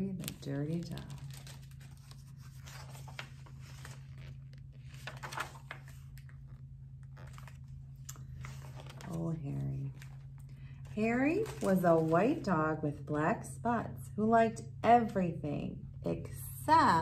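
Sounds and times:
book pages turning: 0:00.0 - 0:12.6
steady low hum: 0:00.0 - 0:17.0.

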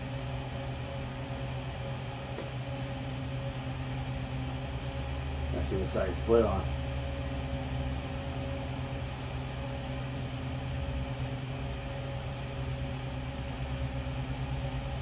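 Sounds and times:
fan humming: 0:00.0 - 0:15.0.

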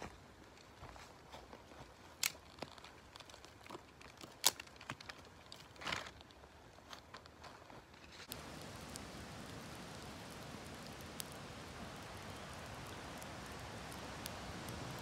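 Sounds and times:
dry kindling snapping and rustling: 0:02.1 - 0:09.0.

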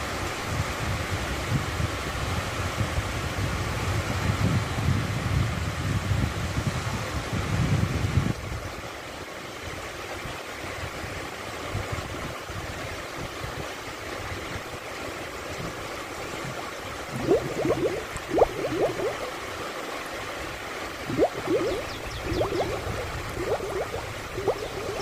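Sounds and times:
water gurgling and lapping: 0:15.5 - 0:25.0.

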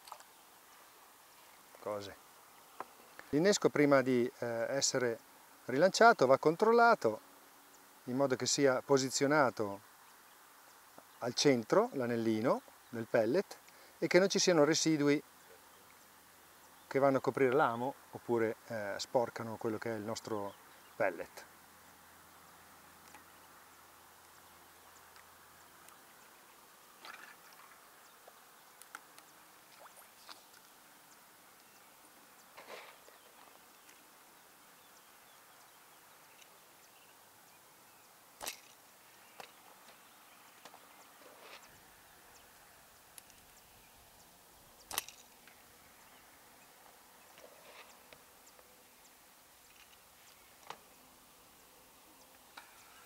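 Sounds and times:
small ticks: 0:00.0 - 0:00.8, 0:10.0 - 0:11.2, 0:13.5 - 0:13.9, 0:15.3 - 0:17.0, 0:23.0 - 0:26.4, 0:27.0 - 0:34.1, 0:34.8 - 0:45.6, 0:46.8 - 0:50.9, 0:51.5 - 0:53.0
faint hiss: 0:00.0 - 0:53.0.

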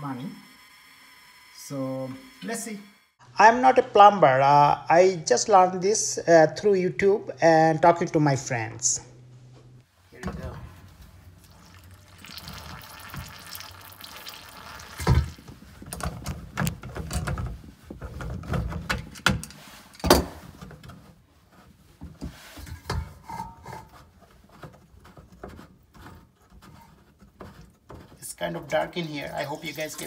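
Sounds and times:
water running: 0:11.3 - 0:15.6, 0:28.3 - 0:30.0
plastic pipes knocking and clattering: 0:15.9 - 0:19.4, 0:22.0 - 0:28.3.

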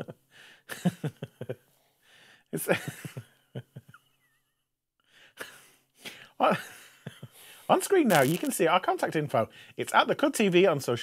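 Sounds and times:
breath: 0:00.3 - 0:00.7, 0:01.7 - 0:02.5, 0:05.0 - 0:06.4, 0:07.3 - 0:07.7, 0:09.5 - 0:09.8.

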